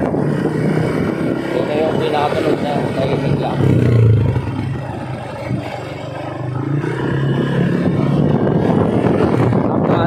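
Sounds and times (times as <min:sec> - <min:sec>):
scooter engine revving: 0:00.0 - 0:10.0.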